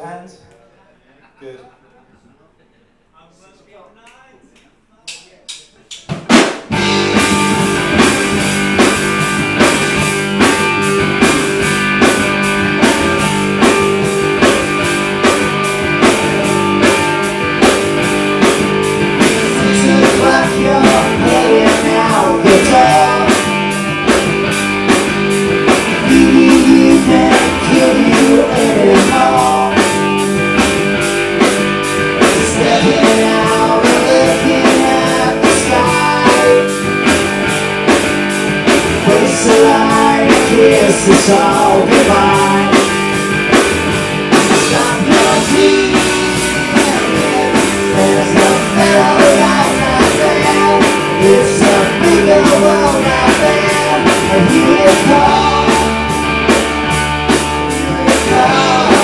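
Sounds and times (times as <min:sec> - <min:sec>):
drum kit beat: 0:05.1 - 0:59.0
bass guitar: 0:06.6 - 0:59.0
electric guitar: 0:06.7 - 0:59.0.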